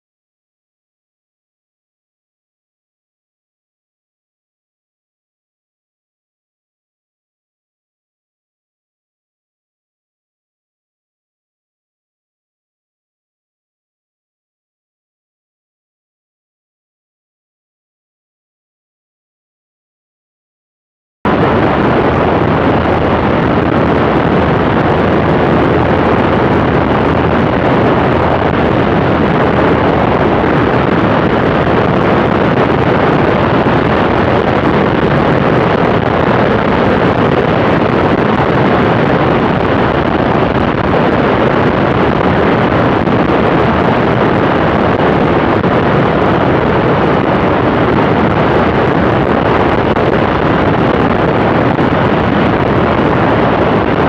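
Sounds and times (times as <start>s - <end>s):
airplane engine and propeller drone: 21.3s - 54.0s
wind rushing over microphone: 21.3s - 54.0s.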